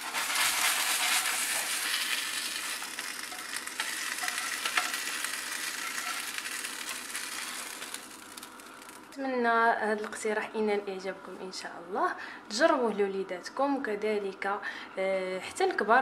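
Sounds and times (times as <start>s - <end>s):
spatula scraping and tapping pan: 0.0s - 6.6s
patties sizzling in oil: 0.0s - 9.2s.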